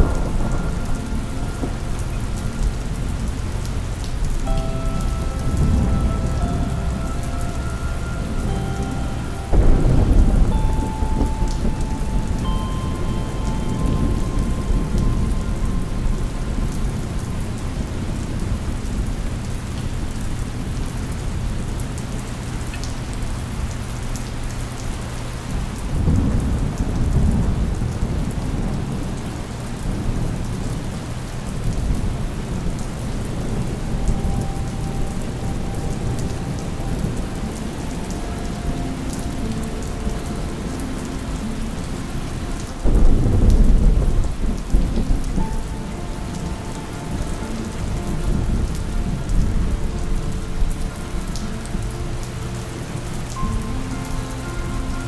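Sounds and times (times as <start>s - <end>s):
thunder rumbling: 0.0s - 21.9s, 25.4s - 53.9s
steady rain: 0.0s - 55.0s.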